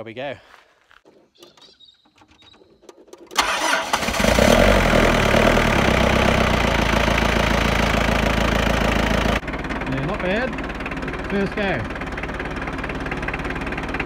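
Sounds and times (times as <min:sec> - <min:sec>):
starter cranking: 0:01.5 - 0:06.6
diesel engine idling: 0:03.4 - 0:14.0.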